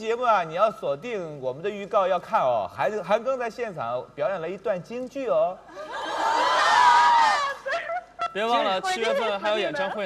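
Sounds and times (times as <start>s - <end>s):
audience screaming and cheering: 5.8s - 7.8s.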